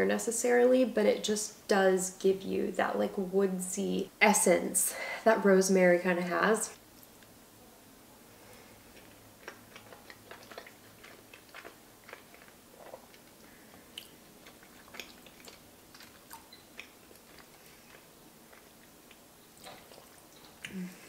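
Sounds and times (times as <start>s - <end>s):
person chewing pasta: 8.5s - 20.8s.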